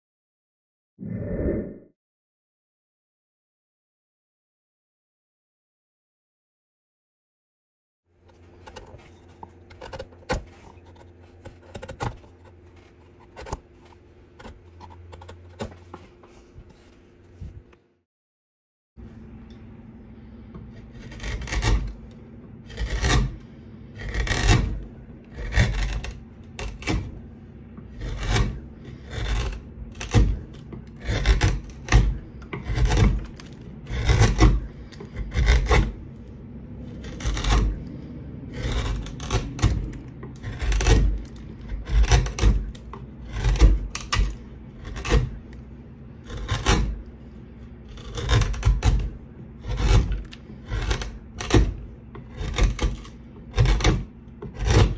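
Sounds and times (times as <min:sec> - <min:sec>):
hand tool scraping wood: 0:08.3 - 0:17.5, 0:20.2 - 0:54.9.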